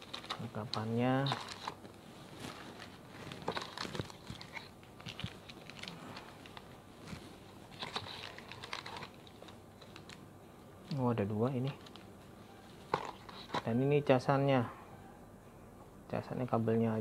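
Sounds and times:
plastic bags crinkling: 0.0s - 10.2s.

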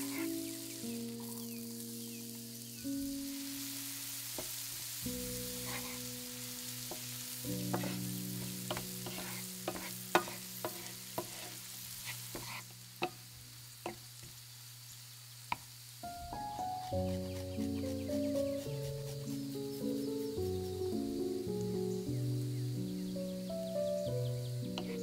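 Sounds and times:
shallots sizzling in oil: 0.0s - 25.0s
wooden spatula scraping pan: 5.6s - 6.1s, 6.9s - 12.7s, 24.8s - 25.0s.

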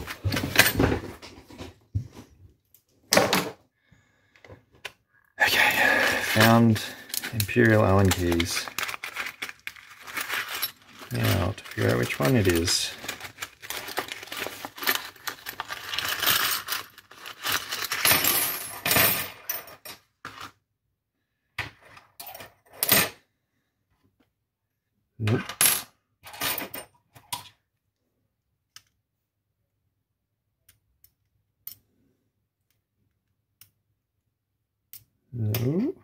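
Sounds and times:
metal keys clattering on table: 6.0s - 20.1s, 25.4s - 27.4s.

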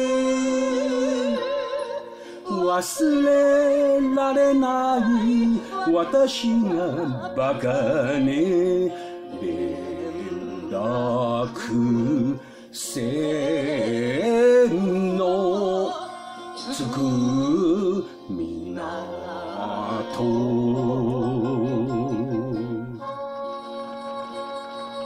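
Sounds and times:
woman singing with vibrato: 0.0s - 8.4s, 14.8s - 17.6s
instrumental backing: 0.0s - 25.0s.

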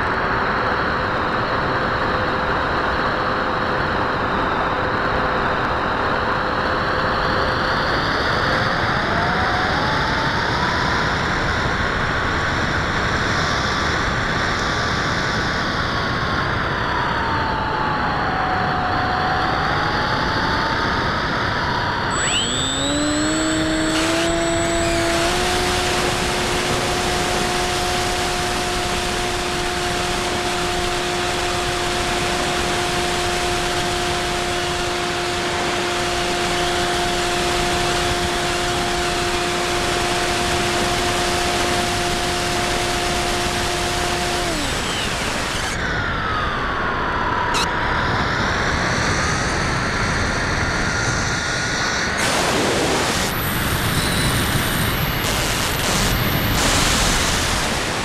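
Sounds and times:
electric motor whine: 0.0s - 58.0s
rushing air: 52.2s - 58.0s.

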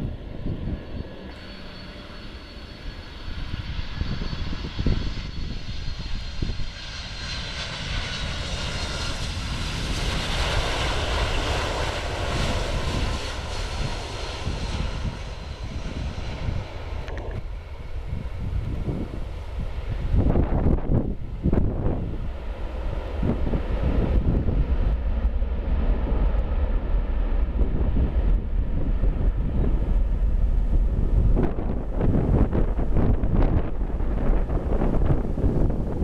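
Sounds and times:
wind buffeting microphone: 0.0s - 1.3s, 3.0s - 36.0s
jet engines whine and roar: 0.0s - 36.0s.

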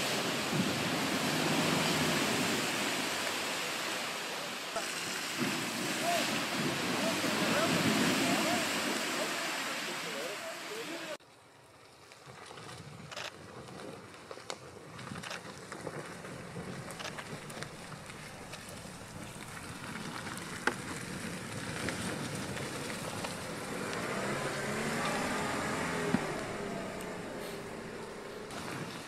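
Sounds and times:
low engine note: 17.8s - 29.0s.

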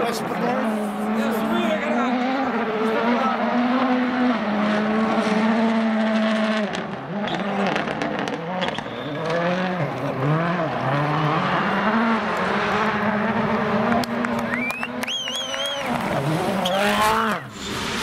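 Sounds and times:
rally car engine at full throttle: 0.0s - 18.0s.

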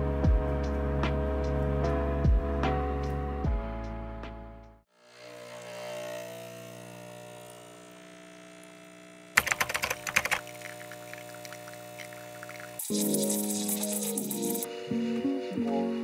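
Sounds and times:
espresso pump humming: 5.2s - 15.1s
loud rapid clicking: 9.4s - 14.6s
espresso streaming into mug: 9.5s - 16.0s.

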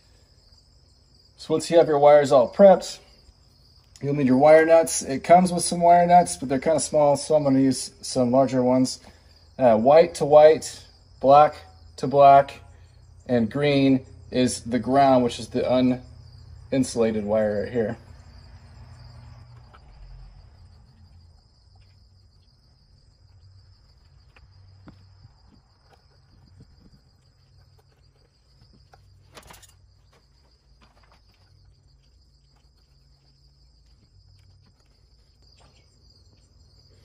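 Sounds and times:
insects trilling: 0.0s - 37.0s
wires clicking and rustling: 27.7s - 31.8s.

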